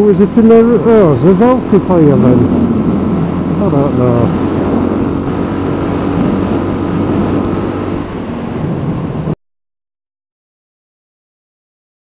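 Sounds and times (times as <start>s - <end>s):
motorcycle engine running: 0.0s - 9.3s
wind rush on microphone: 0.0s - 9.4s.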